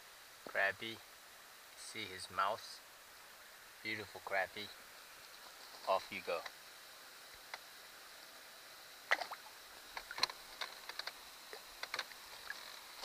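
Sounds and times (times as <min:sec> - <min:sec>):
water drips and splashes: 0:09.0 - 0:13.0.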